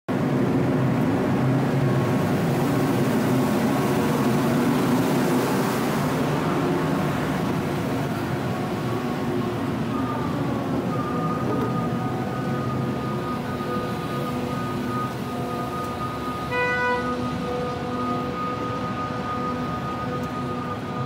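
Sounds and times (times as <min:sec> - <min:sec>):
broad rushing noise: 0:00.1 - 0:21.0
ship machinery droning hum: 0:00.1 - 0:21.0.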